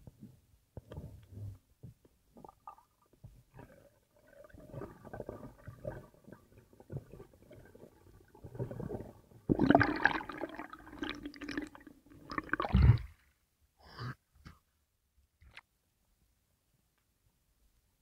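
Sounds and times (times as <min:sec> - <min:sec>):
underwater rumbling and gurgling: 0:03.5 - 0:10.7.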